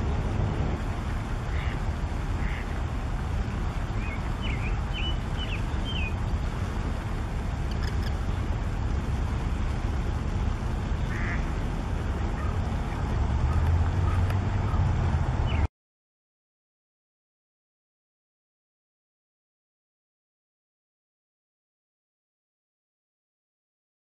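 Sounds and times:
steady low rumble: 0:00.0 - 0:15.7
ducks quacking: 0:01.4 - 0:02.8, 0:11.0 - 0:11.5.

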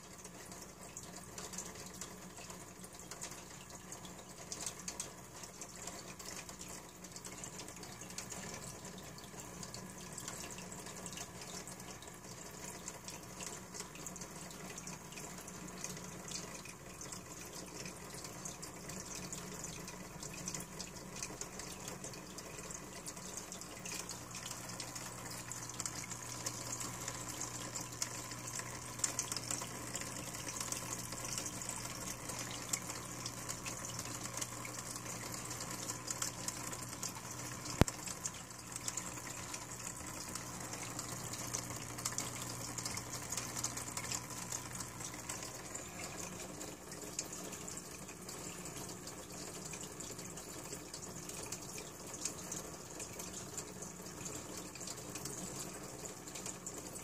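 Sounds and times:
water trickling into tank: 0:00.0 - 0:57.0.

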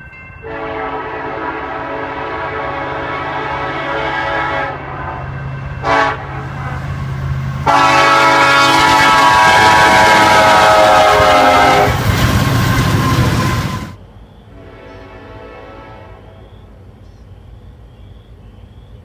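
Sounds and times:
locomotive air horn blasts: 0:00.4 - 0:06.9, 0:07.6 - 0:16.7.

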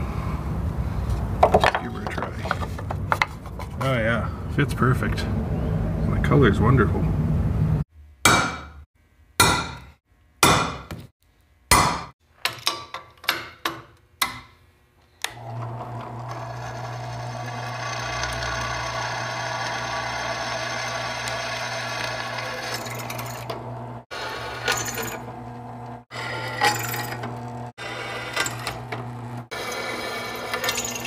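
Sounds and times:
drill press boring into steel: 0:15.3 - 0:25.4.

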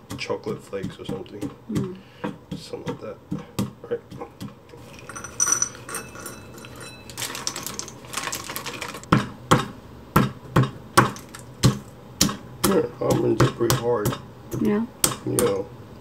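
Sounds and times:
pestle cracking nuts in mortar: 0:00.0 - 0:15.6
plastic bag rustling: 0:04.7 - 0:09.1, 0:11.1 - 0:11.9.

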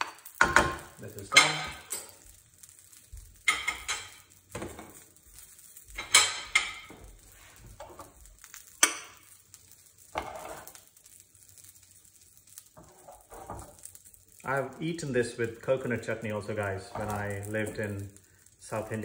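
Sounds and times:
metal spoon scraping a pan: 0:00.0 - 0:14.3.

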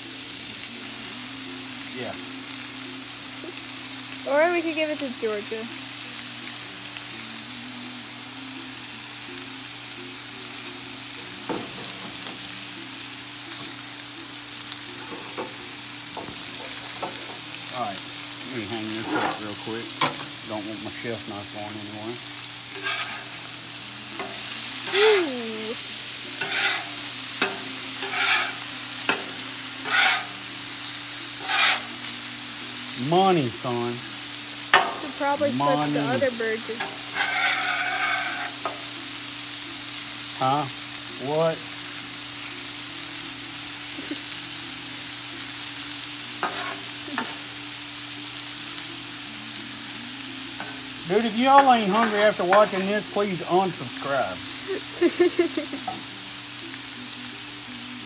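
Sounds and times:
meat sizzling on griddle: 0:00.0 - 0:58.0
metal spatula scraping griddle: 0:18.8 - 0:20.3, 0:22.7 - 0:23.5, 0:24.2 - 0:25.2, 0:26.4 - 0:30.5, 0:31.3 - 0:32.1, 0:36.8 - 0:38.8, 0:46.4 - 0:47.4.

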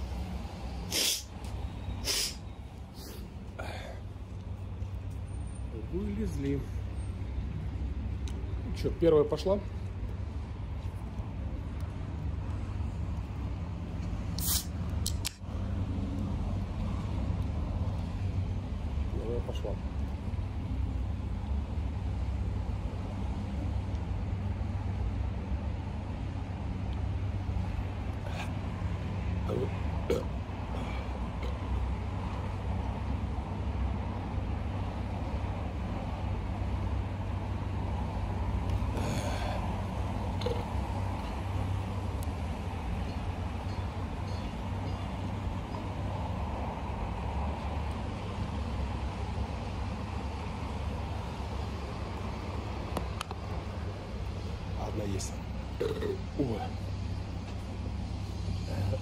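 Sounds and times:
city traffic rumble: 0:00.0 - 0:59.0
short sharp hiss: 0:00.8 - 0:02.4, 0:14.3 - 0:14.8.

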